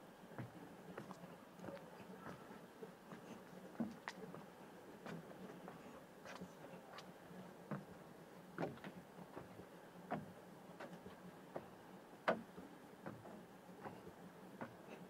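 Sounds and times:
faint steady hum: 0.0 - 15.0
soft footsteps: 0.3 - 8.0.

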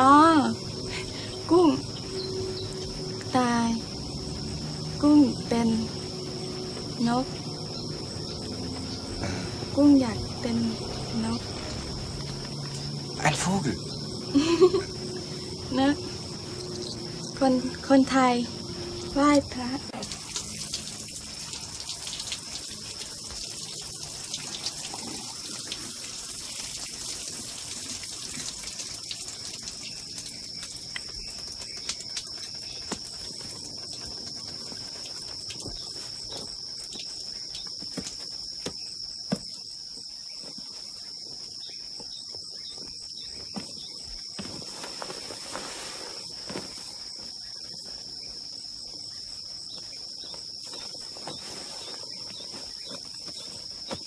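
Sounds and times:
crickets droning: 0.0 - 54.0
shower water spraying: 13.8 - 37.4, 44.4 - 47.2.

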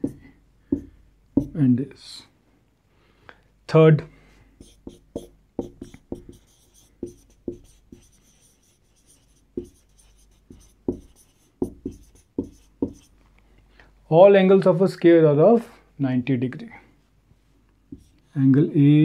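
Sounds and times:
marker tapping on whiteboard: 0.0 - 1.6, 4.6 - 13.1, 17.9 - 18.2.

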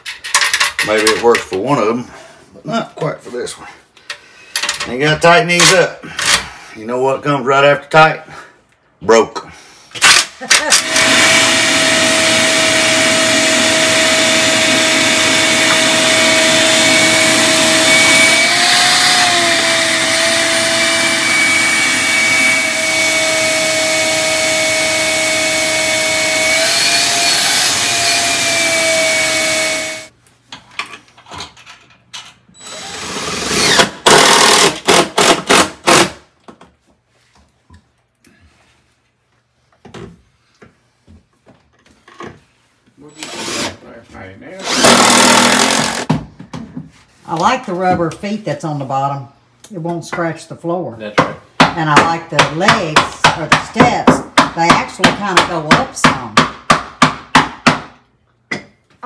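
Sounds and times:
cordless drill driving screws: 10.0 - 30.1, 32.6 - 36.1, 43.2 - 43.8, 44.6 - 46.1
shop vacuum whining: 10.6 - 30.1, 44.6 - 46.1.

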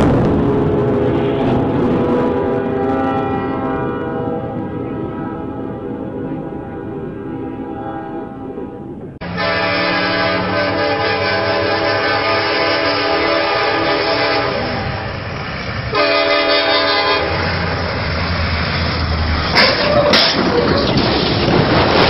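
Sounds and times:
loud train crash: 0.0 - 7.2, 9.0 - 22.0
locomotive air horn blasts: 1.0 - 15.2, 15.9 - 17.7.

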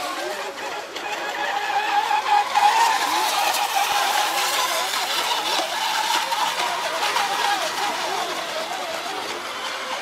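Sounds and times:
model boat motor whining: 0.0 - 10.0.

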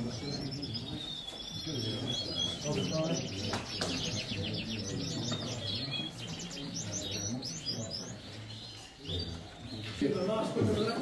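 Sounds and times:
canaries singing fast trills: 0.0 - 11.0.

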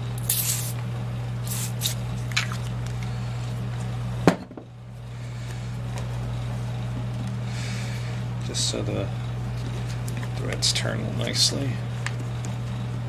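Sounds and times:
steady low hum: 0.0 - 13.0
lubricant spray hissing: 0.2 - 0.8, 1.4 - 2.0.

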